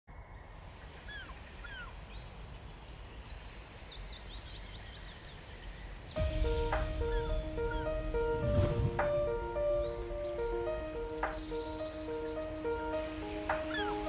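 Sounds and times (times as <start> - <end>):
birds calling: 0.3 - 14.0
music with steady notes: 6.2 - 14.0.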